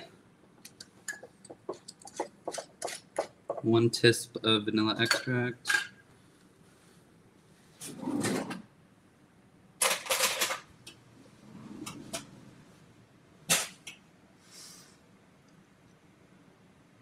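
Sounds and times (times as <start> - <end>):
drawer opening with utensils clattering: 7.8 - 8.7, 9.8 - 10.7, 11.3 - 12.6.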